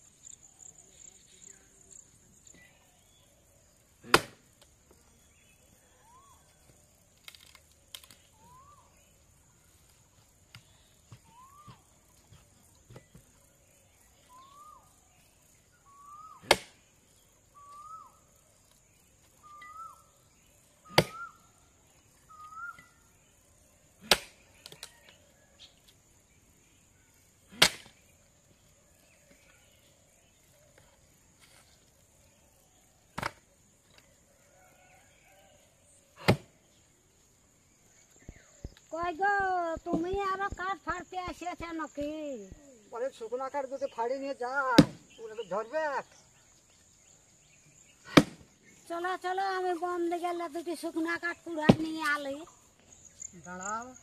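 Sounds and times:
axe strikes splitting wood: 4.0 - 4.4, 16.4 - 16.8, 20.9 - 21.3, 24.0 - 24.4, 27.5 - 28.0, 36.2 - 36.5, 44.8 - 45.0, 48.1 - 48.5.

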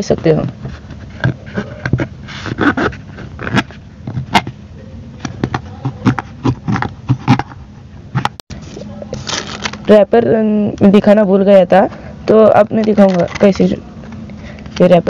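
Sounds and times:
knife scraping a bottle: 0.6 - 4.4.

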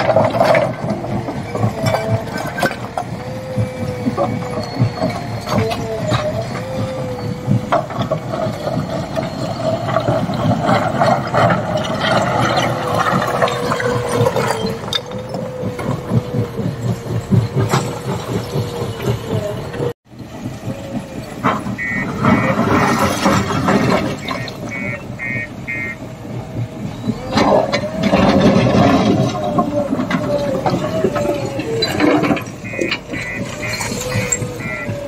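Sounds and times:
diesel engine whining under load: 0.0 - 35.0
reversing alarm beeping: 1.4 - 11.2, 20.6 - 35.0.

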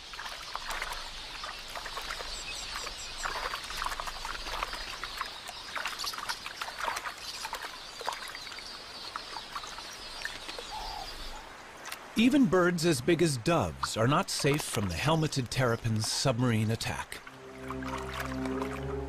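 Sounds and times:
water splashing: 0.0 - 19.0
birds chittering: 0.4 - 11.5.

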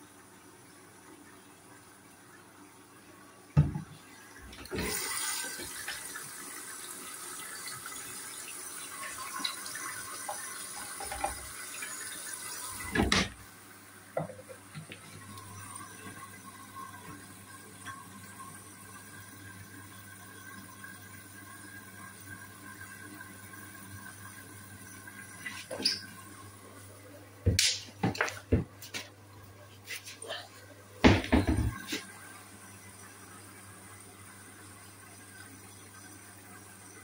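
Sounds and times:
washing machine knock: 3.6 - 3.9, 31.0 - 31.9
washing machine water inlet hissing: 4.2 - 13.5, 31.1 - 34.0.

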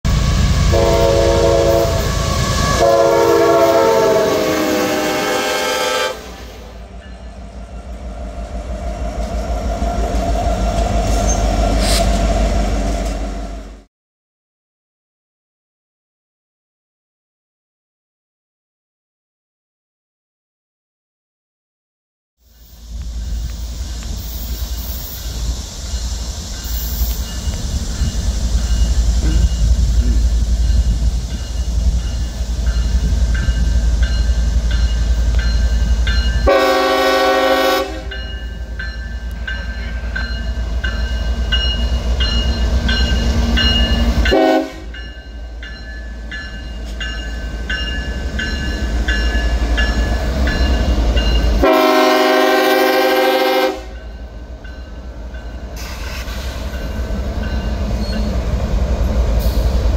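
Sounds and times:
diesel locomotive rumble: 0.0 - 13.9, 22.5 - 59.9
train air horn blast: 0.1 - 6.9, 11.0 - 12.5, 36.4 - 38.2, 44.3 - 45.0, 51.6 - 54.0.

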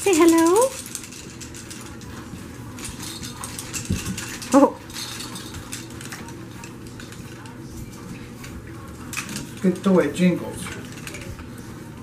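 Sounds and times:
jingling toy rattling: 0.0 - 7.5.

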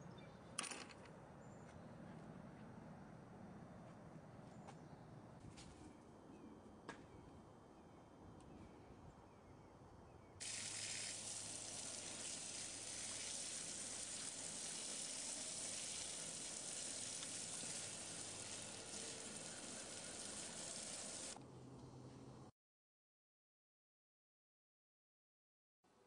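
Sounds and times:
garden hose spraying water: 10.4 - 21.4.

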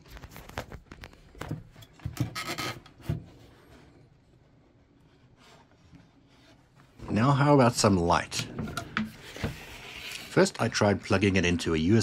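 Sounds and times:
plastic rubbing with clicks and knocks: 0.0 - 3.9.

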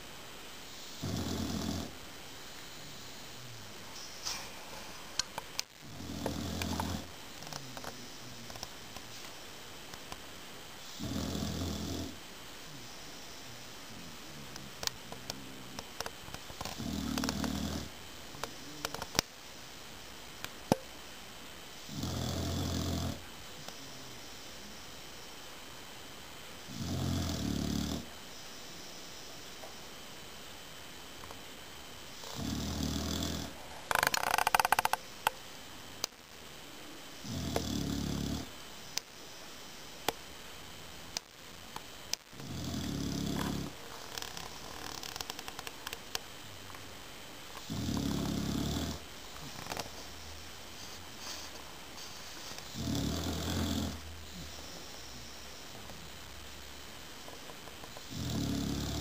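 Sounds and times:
dog snoring: 0.8 - 2.0, 5.8 - 8.5, 10.8 - 13.0, 16.6 - 18.0, 21.8 - 23.3, 26.7 - 28.1, 32.1 - 35.0, 37.2 - 38.5, 42.4 - 45.5, 47.6 - 55.3, 57.9 - 59.0.

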